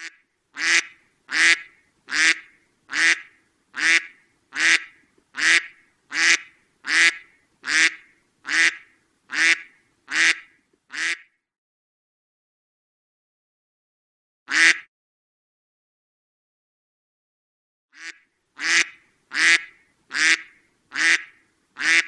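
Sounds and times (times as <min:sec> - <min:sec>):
duck quacking: 0:00.0 - 0:11.3, 0:14.5 - 0:14.9, 0:18.0 - 0:22.0.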